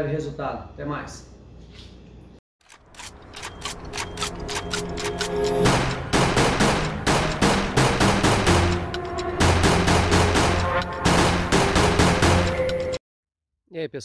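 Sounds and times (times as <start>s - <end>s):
upbeat electronic music: 4.4s - 13.0s.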